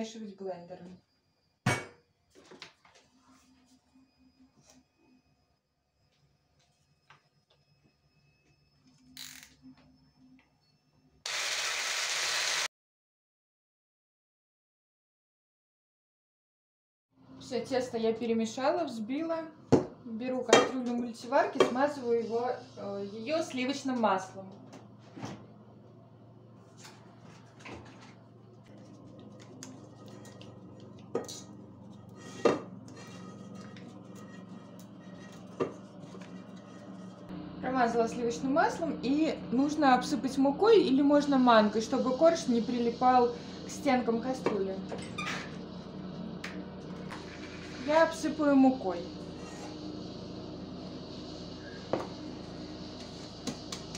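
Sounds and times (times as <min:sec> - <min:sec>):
electric hand blender whisking: 0:11.3 - 0:12.7
hand rubbing inside pot: 0:31.8 - 0:37.3.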